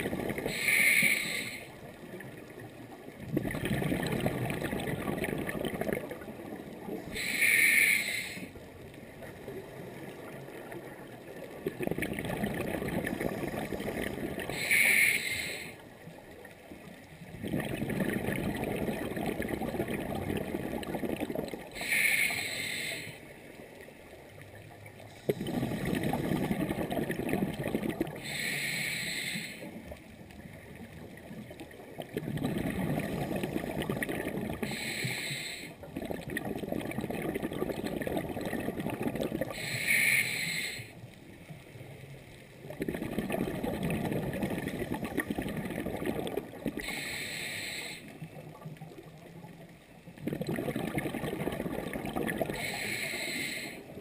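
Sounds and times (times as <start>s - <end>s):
exhaled bubbles gurgling: 0.0s - 54.0s
regulator inhale hiss: 0.4s - 1.9s, 7.1s - 8.6s, 13.2s - 15.9s, 21.8s - 23.4s, 28.2s - 29.8s, 34.6s - 35.8s, 39.5s - 41.0s, 46.8s - 48.2s, 52.5s - 54.0s.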